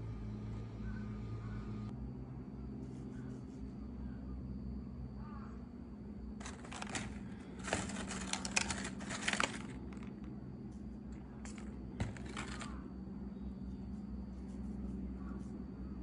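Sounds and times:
plastic straps rustling and clicking: 6.4s - 10.3s, 11.4s - 12.8s.

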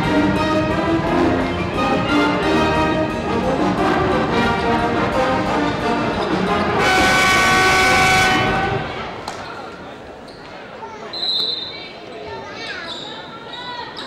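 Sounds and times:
brass music: 0.0s - 9.2s.

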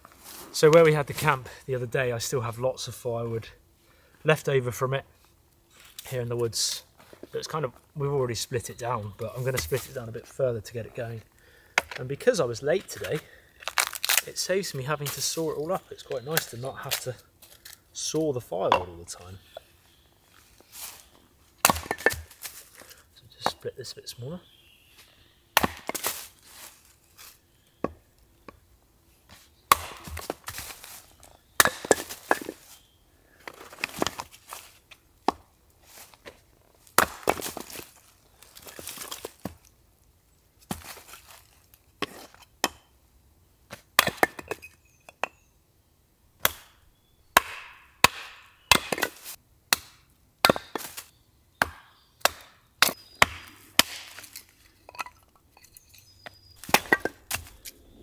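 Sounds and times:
hatchet chopping firewood: 11.8s - 12.0s, 13.0s - 14.3s, 21.6s - 22.8s, 25.6s - 26.3s, 29.7s - 31.0s, 31.6s - 32.6s, 35.2s - 35.5s, 36.9s - 37.8s, 42.0s - 42.9s, 43.7s - 45.4s, 46.4s - 55.2s, 56.2s - 57.8s
wood cracking apart: 13.6s - 14.3s.

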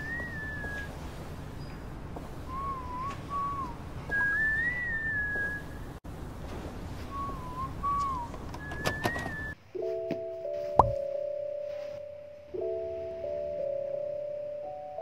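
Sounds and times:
person whistling a tune: 2.5s - 5.7s, 7.1s - 9.6s.

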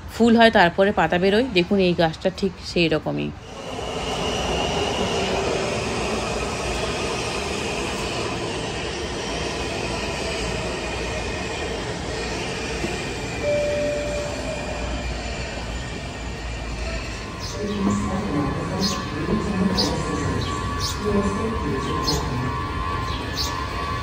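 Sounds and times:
metro train rumbling: 0.0s - 24.0s
train wheel squeal: 3.4s - 24.0s
short beep: 13.4s - 15.1s.

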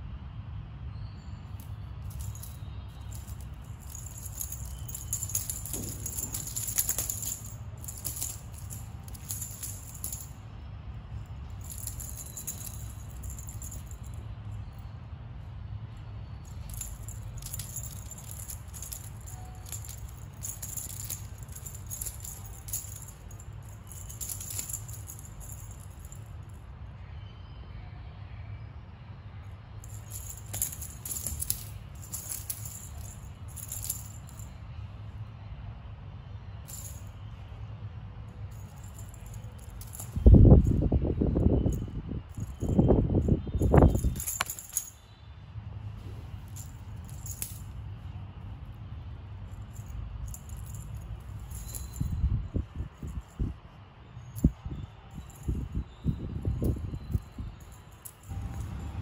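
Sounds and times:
metal bead chain rattling on tile: 1.5s - 10.4s, 11.2s - 14.8s, 16.4s - 26.6s, 29.8s - 34.6s, 36.6s - 37.3s, 38.3s - 45.3s, 46.2s - 48.1s, 49.5s - 53.6s, 54.2s - 59.0s.

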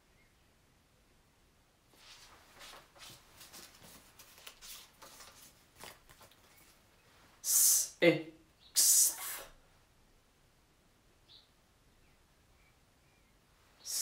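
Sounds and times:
paper cards shuffling: 2.0s - 6.8s
person speaking: 7.4s - 9.6s, 13.8s - 14.0s.

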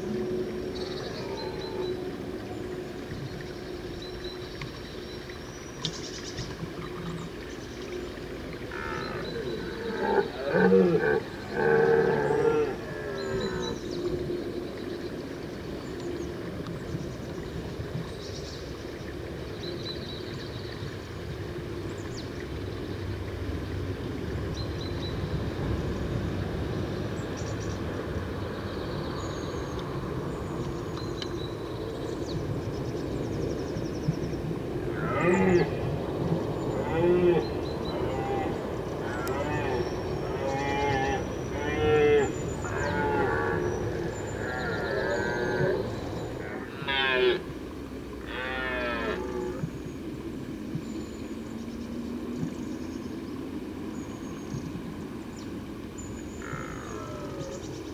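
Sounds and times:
distant stag roaring: 36.8s - 47.4s.

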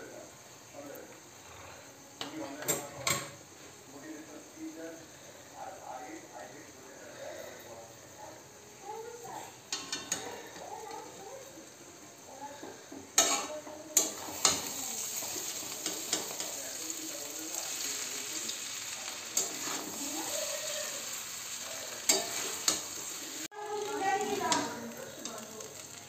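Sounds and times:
noodles sizzling in a pan: 7.1s - 26.0s.

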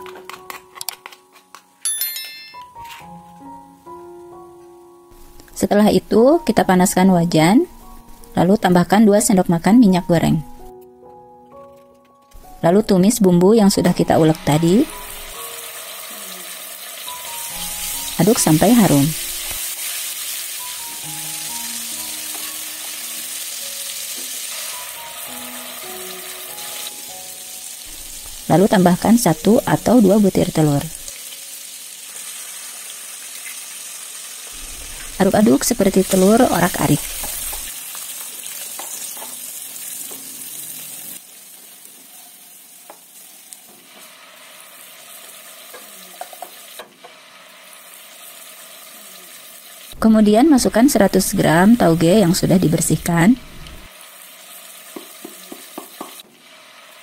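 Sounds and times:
spatula scraping and tapping wok: 0.0s - 1.7s, 37.0s - 37.8s, 38.6s - 40.3s, 45.6s - 47.3s, 54.8s - 56.4s
spice paste sizzling in oil: 5.1s - 10.7s, 12.4s - 57.0s.

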